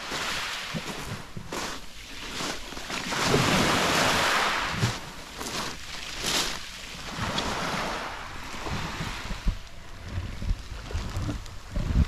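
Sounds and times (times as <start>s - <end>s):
waves washing onto pebble beach: 0.0s - 10.1s
wind buffeting microphone: 7.0s - 12.0s.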